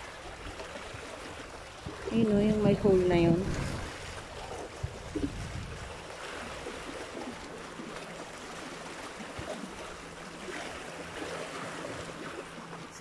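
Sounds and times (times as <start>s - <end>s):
waves washing among boulders: 0.0s - 13.0s.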